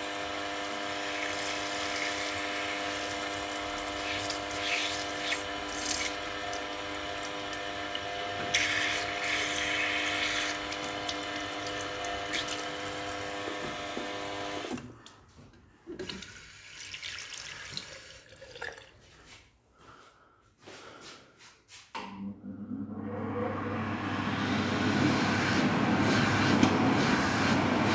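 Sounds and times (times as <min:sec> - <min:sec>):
tap water running into basin: 0:01.0 - 0:14.9, 0:15.9 - 0:19.0
multi-tone hum: 0:22.0 - 0:27.9.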